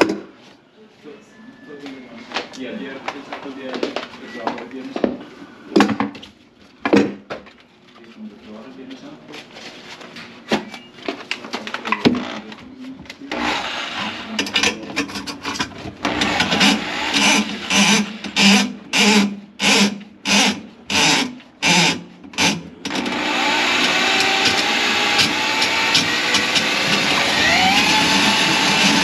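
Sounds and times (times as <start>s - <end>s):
drain machine running with whine: 13.3s - 14.6s, 16.0s - 18.6s, 22.8s - 29.0s.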